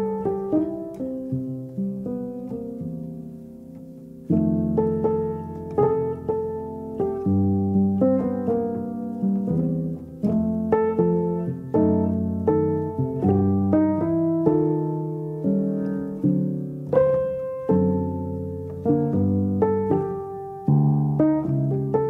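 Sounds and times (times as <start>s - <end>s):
piano music: 0.0s - 22.0s.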